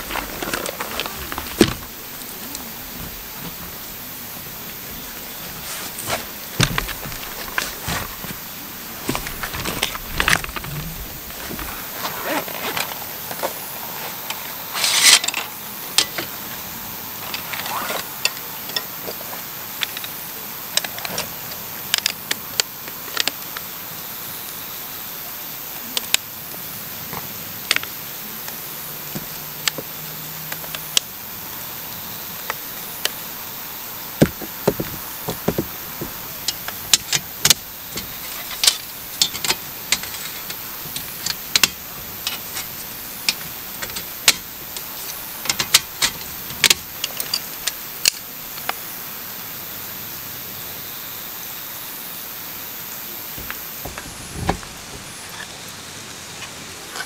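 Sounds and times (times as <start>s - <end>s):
steady background hiss: 0.0s - 57.0s.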